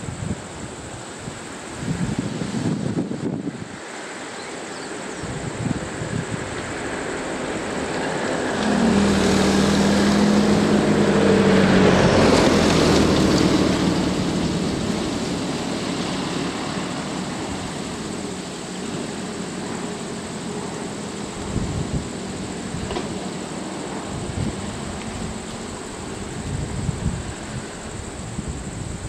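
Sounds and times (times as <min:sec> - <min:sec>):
car driving past: 0:06.7 - 0:27.8.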